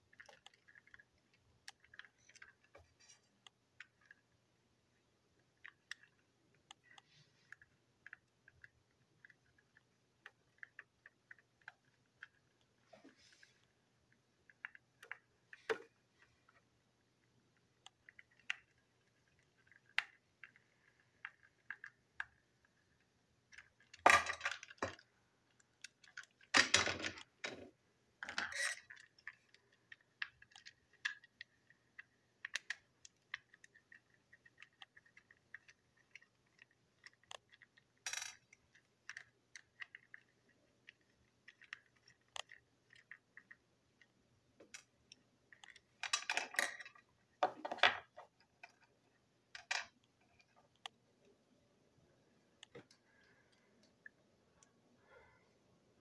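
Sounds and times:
toy parts clicking and clattering: 0.0s - 4.4s, 5.4s - 12.8s, 17.2s - 50.9s.

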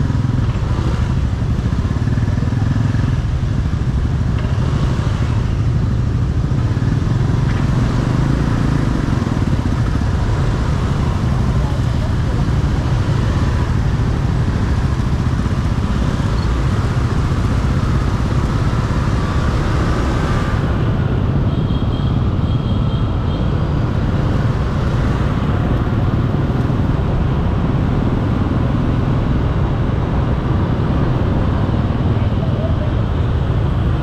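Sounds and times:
road noise: 0.0s - 34.0s
traffic engines rumbling: 0.0s - 34.0s.

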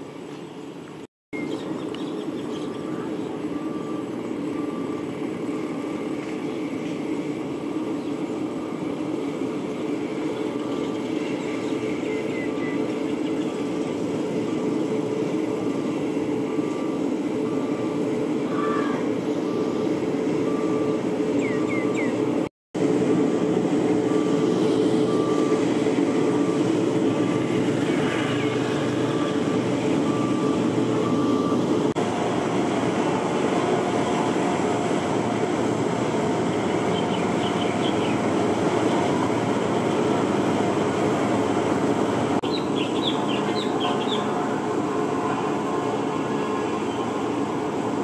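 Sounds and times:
heavy machine diesel engines: 0.0s - 48.0s
reversing alarm beeping: 2.6s - 13.3s, 14.2s - 22.5s, 23.8s - 39.6s.

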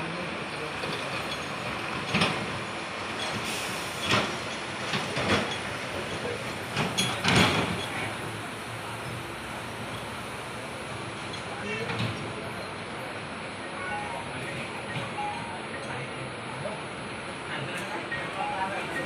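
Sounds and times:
train wheels rumbling on rails: 0.2s - 19.0s
wheels clacking over rail joints: 0.6s - 10.2s.

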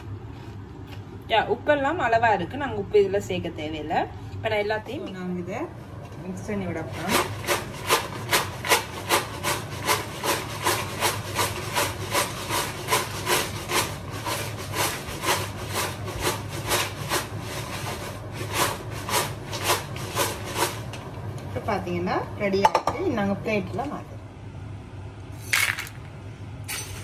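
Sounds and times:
chips rattling and scraping in a vessel: 25.4s - 26.1s.

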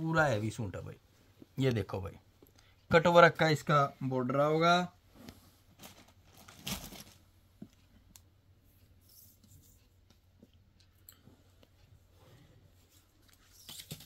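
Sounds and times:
cloth rustling: 5.1s - 7.4s.

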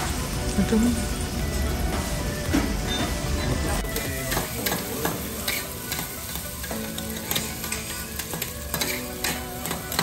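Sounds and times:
rice sizzling on a griddle: 0.0s - 10.0s
metal spatulas scraping a griddle: 4.0s - 10.0s.

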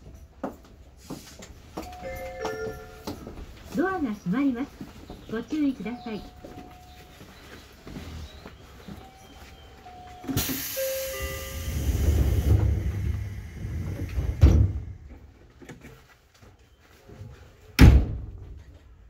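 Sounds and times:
train door hiss: 10.3s - 15.0s
sliding door bang: 11.7s - 15.0s
door thud: 17.8s - 18.4s.

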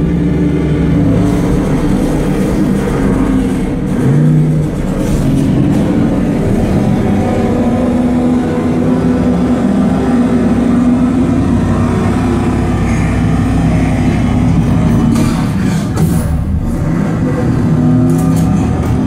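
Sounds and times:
car and truck engines running hard: 0.0s - 19.0s.

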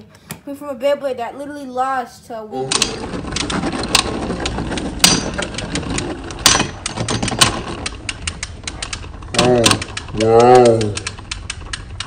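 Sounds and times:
spinning tops whirring and rattling: 2.7s - 12.0s.

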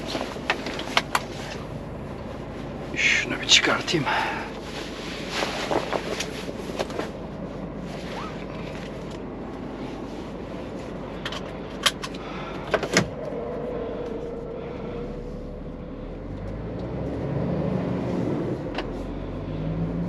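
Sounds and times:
truck engine and road noise: 0.0s - 20.0s.

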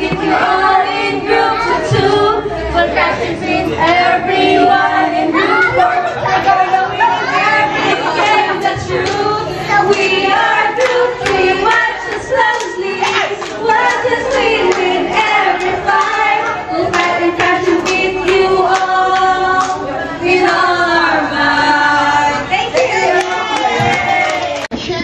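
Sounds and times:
group singing in unison: 0.0s - 24.6s.

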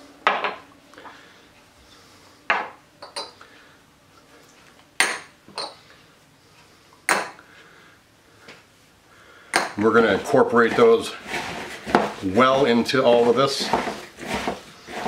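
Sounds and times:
glass bowls clinking: 2.5s - 3.4s, 5.0s - 5.8s.

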